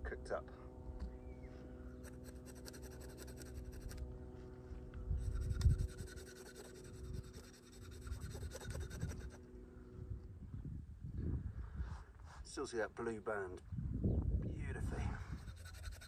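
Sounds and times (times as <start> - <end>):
knife scraping fish scales: 2.0 - 4.0, 5.3 - 9.4, 15.4 - 16.0.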